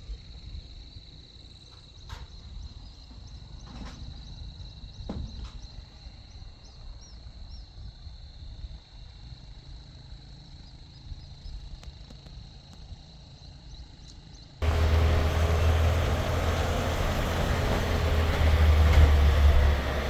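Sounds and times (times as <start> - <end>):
loud low rumble with hiss: 14.6 - 20.0.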